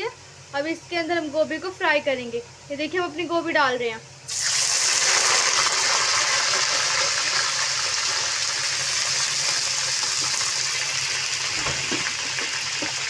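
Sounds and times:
vegetables sizzling in hot oil: 4.3 - 13.0.

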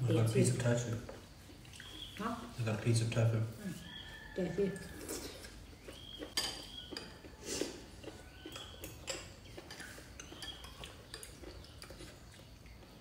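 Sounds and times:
spoons clinking against bowls: 6.2 - 7.4, 8.0 - 12.1.

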